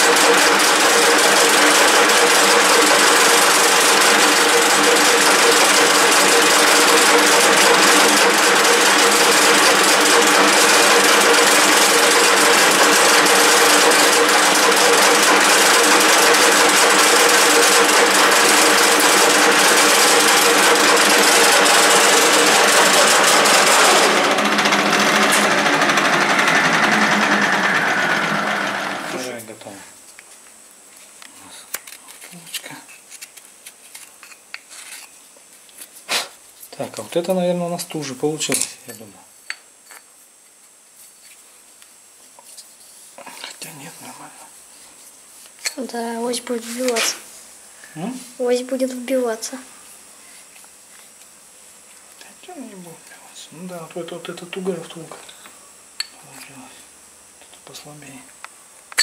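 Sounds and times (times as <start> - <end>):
lathe running: 0.0 - 29.3.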